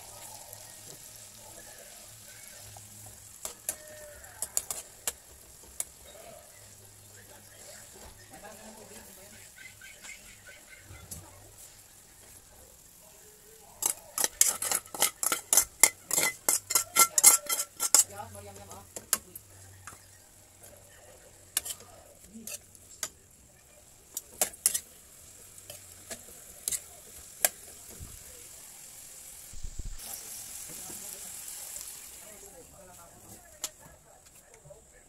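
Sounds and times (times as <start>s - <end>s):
metal turner scraping a wok: 2.2s - 6.1s, 13.8s - 19.2s, 21.5s - 23.1s, 24.1s - 27.8s.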